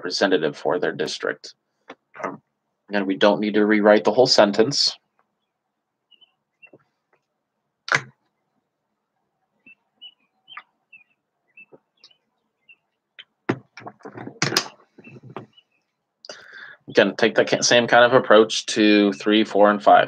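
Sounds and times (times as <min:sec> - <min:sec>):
faint high chirps: 0:09.6 - 0:13.3
sharp knocks: 0:13.5 - 0:15.5.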